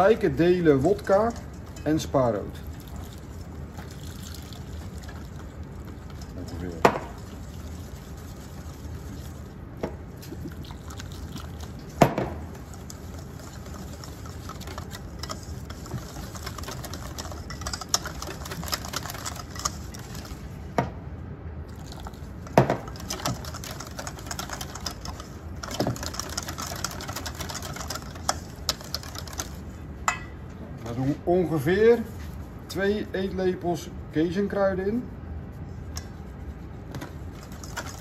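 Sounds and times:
whisk clicking against metal bowl: 0.7 - 2.3, 12.5 - 20.2, 22.8 - 30.2.

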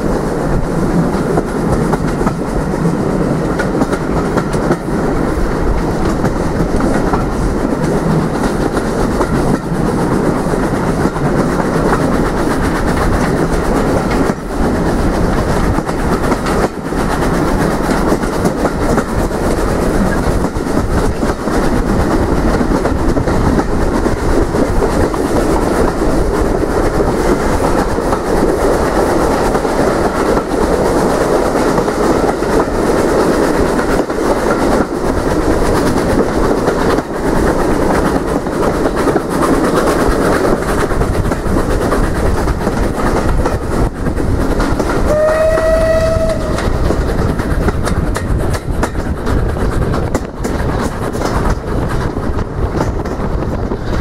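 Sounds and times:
train wheels rumbling on rails: 0.0 - 54.0
train horn: 45.0 - 46.8.

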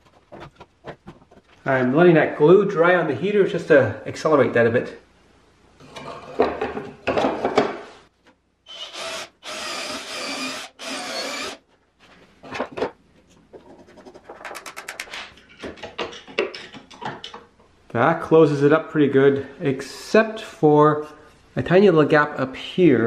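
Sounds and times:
wood rubbing and knocking: 0.0 - 1.6, 12.6 - 17.5
electric drill motor whining: 8.7 - 11.6
quick run of clicks: 14.4 - 15.3.

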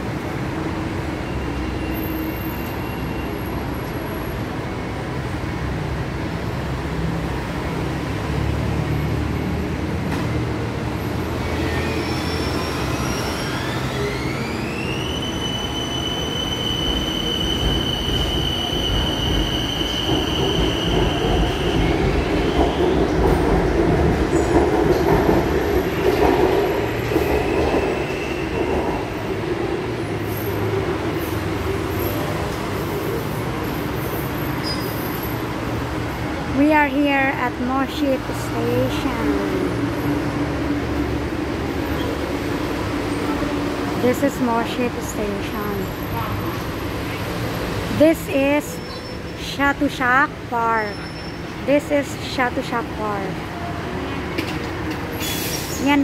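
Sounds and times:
train rumbling on track: 0.0 - 56.0
electric train whine: 11.2 - 24.5.

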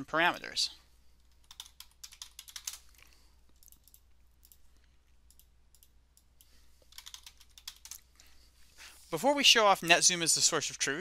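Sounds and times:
keyboard typing: 1.2 - 8.1.

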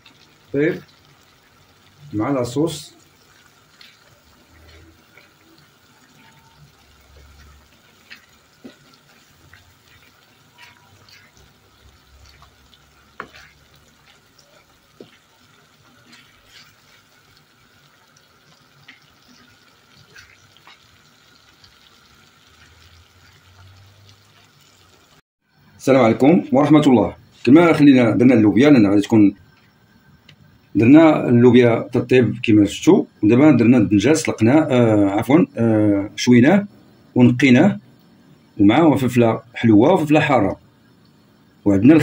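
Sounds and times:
sauce sizzling and bubbling: 0.0 - 42.0
wooden spatula scraping pan: 6.1 - 17.2.

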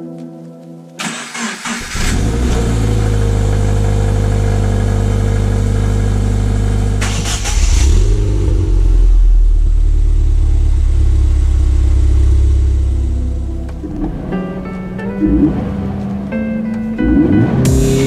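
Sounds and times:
car engine cranking and starting: 1.0 - 18.0
car engine fast idle: 1.1 - 10.6.

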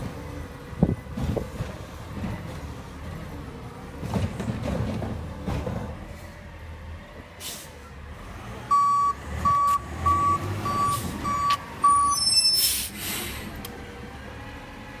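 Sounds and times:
reversing alarm beeping: 8.7 - 12.6.

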